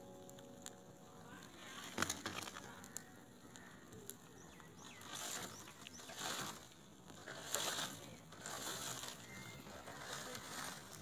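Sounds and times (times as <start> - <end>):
hissing flame: 0.0 - 11.0
leaves burning with crackling: 0.0 - 11.0.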